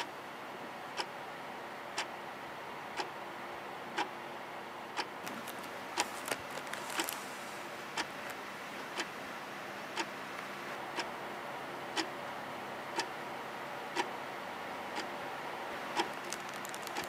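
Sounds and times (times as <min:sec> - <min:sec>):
steady hiss: 0:05.2 - 0:11.4.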